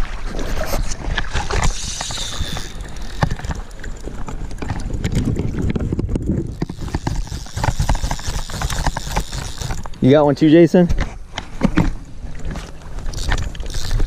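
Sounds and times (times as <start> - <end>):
water sloshing and splashing: 0.0 - 10.4, 11.0 - 14.0
wind rumbling on microphone: 0.0 - 14.0
knocks and clicks: 6.4 - 10.0.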